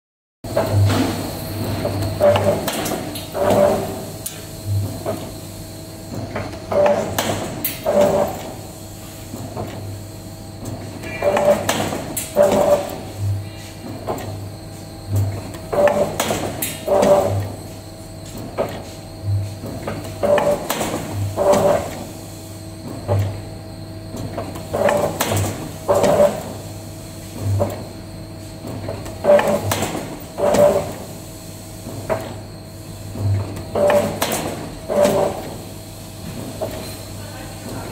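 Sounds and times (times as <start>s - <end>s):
steady machine hum: 0.5s - 37.9s.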